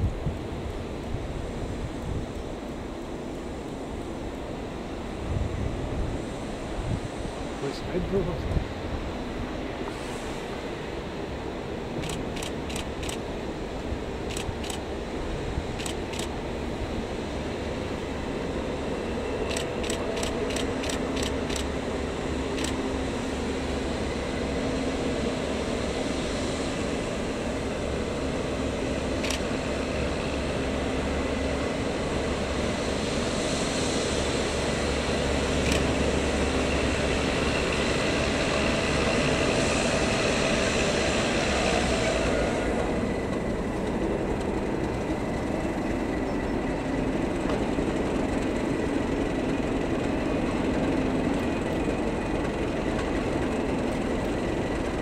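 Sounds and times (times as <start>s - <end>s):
diesel locomotive engine running: 0.0s - 55.0s
sharp clicks: 19.5s - 21.7s.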